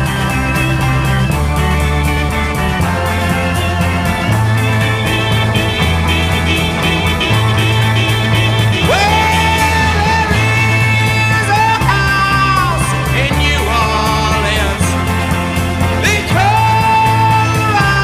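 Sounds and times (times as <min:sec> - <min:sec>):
arpeggiated electric guitar: 0:00.0 - 0:18.0
bass: 0:00.0 - 0:18.0
drums: 0:00.0 - 0:18.0
electric organ: 0:00.0 - 0:18.0
man singing: 0:08.8 - 0:15.2, 0:15.9 - 0:18.0.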